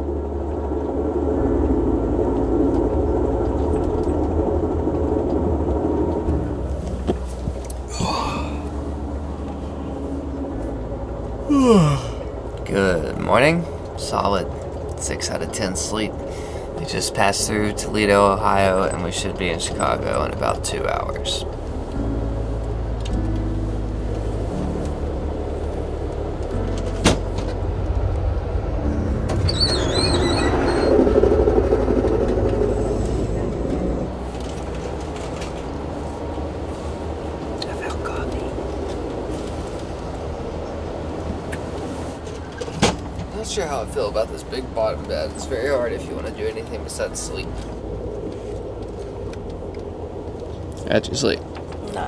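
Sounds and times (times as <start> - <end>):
train rumbling: 0.0 - 52.0
wavering high squeal: 28.8 - 34.1.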